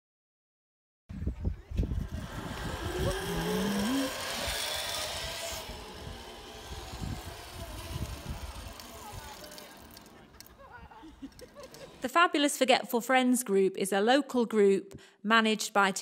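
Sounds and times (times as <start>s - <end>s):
zip line trolley whirring: 1.2s - 12.1s.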